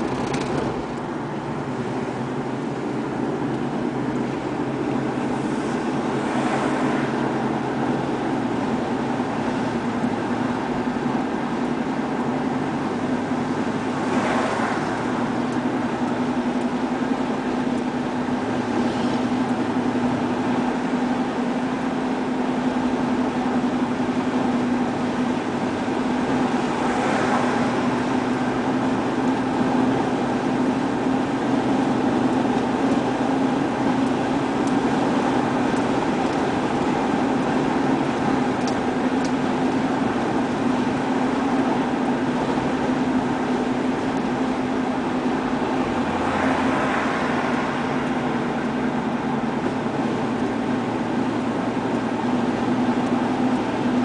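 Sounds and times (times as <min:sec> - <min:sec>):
car engine and tyre drone: 0:00.0 - 0:54.0
road hiss: 0:01.1 - 0:10.5, 0:18.2 - 0:20.6.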